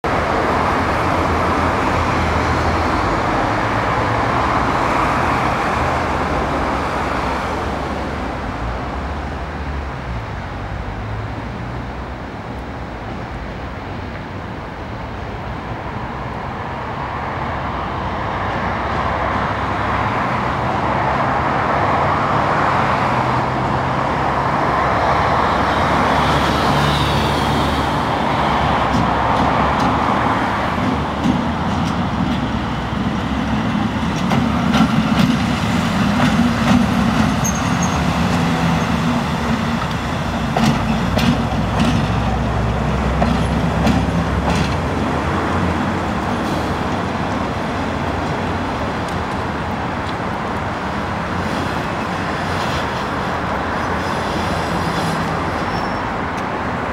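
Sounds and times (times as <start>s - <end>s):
diesel locomotive engine throbbing: 27.8s - 51.1s
wheels clicking over rail joints: 28.8s - 53.0s.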